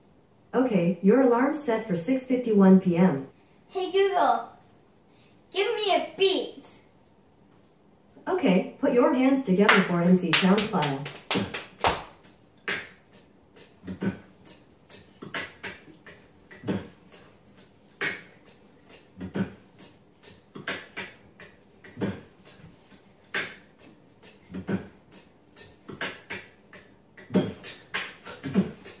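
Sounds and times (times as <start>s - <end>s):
beatbox beat from speaker: 10.5s - 29.0s.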